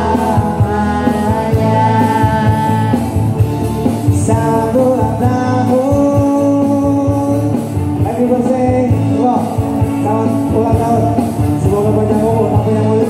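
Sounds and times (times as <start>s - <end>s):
person singing long notes: 0.0s - 3.2s
band playing: 0.0s - 13.0s.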